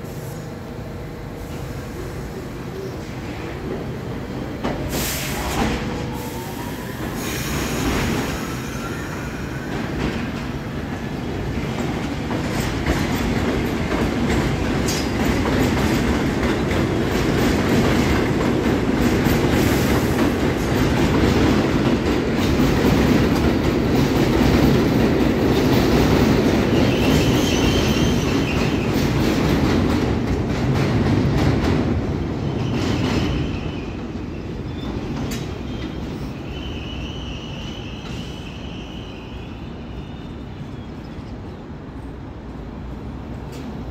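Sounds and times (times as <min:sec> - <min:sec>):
train wheels squealing: 0:04.9 - 0:10.6, 0:26.6 - 0:29.3, 0:32.3 - 0:41.6
train wheels clicking over rail joints: 0:09.7 - 0:31.9.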